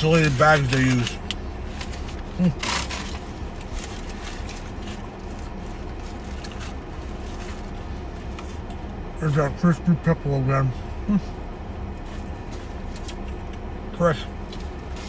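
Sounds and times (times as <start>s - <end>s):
car cabin rumble: 0.0s - 15.0s.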